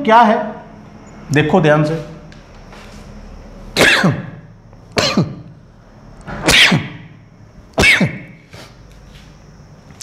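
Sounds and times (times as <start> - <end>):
man coughing: 3.8 - 4.4, 5.0 - 5.5, 6.5 - 7.0, 7.8 - 8.4.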